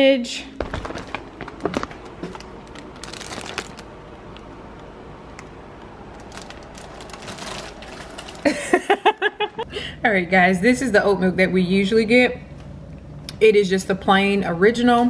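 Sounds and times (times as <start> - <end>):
plastic bag crinkling: 0.6 - 4.4, 6.1 - 8.8.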